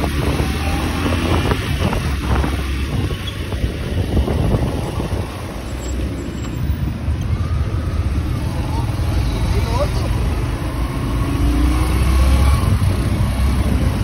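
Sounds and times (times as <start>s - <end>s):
wind on microphone: 0.0s - 5.7s
vehicle engine and road rumble: 0.0s - 14.0s.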